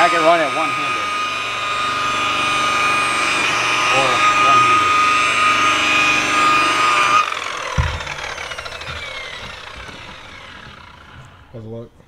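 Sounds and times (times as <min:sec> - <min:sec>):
rotary buffer whining: 0:00.0 - 0:12.0
low knock: 0:07.7 - 0:11.3.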